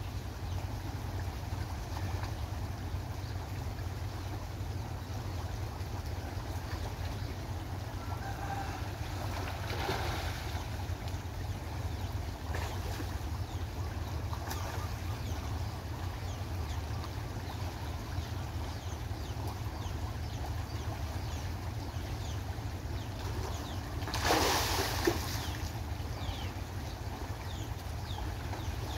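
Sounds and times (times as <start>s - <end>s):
fish splashing at water surface: 8.2s - 11.1s, 24.0s - 25.5s.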